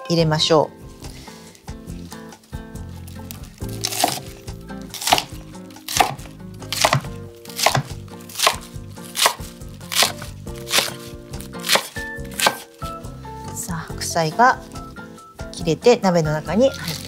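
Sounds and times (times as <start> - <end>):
knife chopping on cutting board: 3.8 - 12.7.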